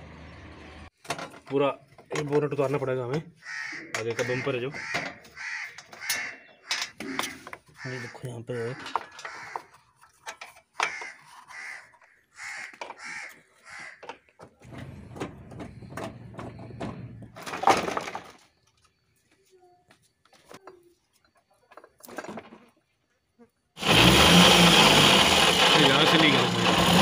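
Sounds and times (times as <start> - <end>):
plastic scraping and rattling: 14.0 - 18.6.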